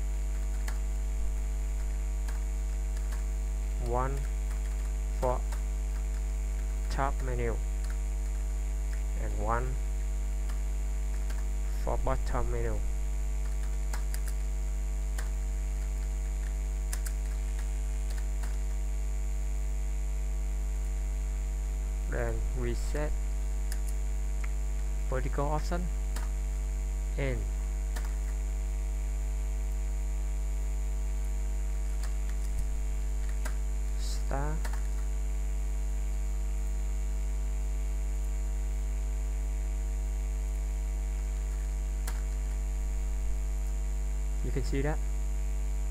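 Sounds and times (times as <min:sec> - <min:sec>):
electrical mains hum: 0:00.0 - 0:45.9
faint high whine: 0:00.0 - 0:45.9
faint keyboard clicks: 0:00.4 - 0:00.8, 0:01.8 - 0:06.9, 0:13.4 - 0:14.5, 0:15.2 - 0:18.8, 0:27.9 - 0:28.4, 0:31.7 - 0:35.1, 0:41.4 - 0:42.6.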